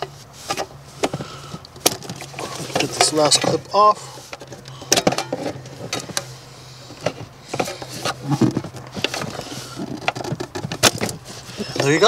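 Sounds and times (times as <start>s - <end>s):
metal case and harness knocking: 7.0s - 12.0s.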